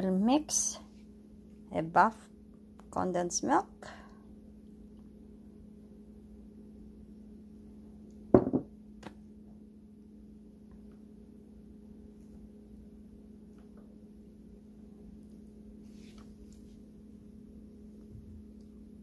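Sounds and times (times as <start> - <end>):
faint steady hum: 0.0 - 19.0
vessel knocking on wooden table: 8.3 - 8.7.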